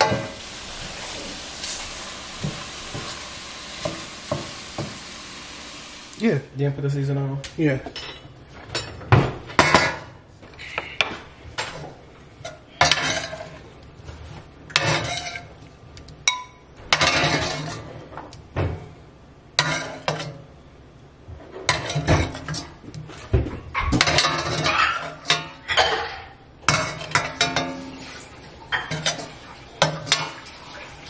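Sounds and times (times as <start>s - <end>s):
metal spoon scraping skillet: 12.4s - 13.6s, 14.7s - 15.6s, 16.3s - 17.9s, 19.6s - 20.4s, 21.5s - 22.7s.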